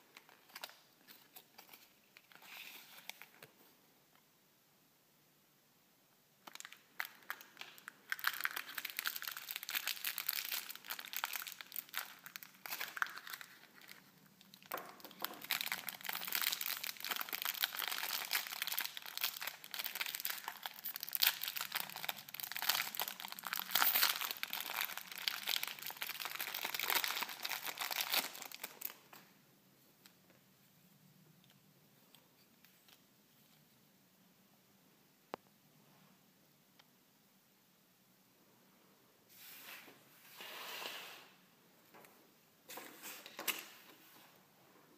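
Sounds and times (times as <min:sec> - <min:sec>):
plastic wrapper crinkling: 0:00.0 - 0:03.6, 0:06.4 - 0:29.3.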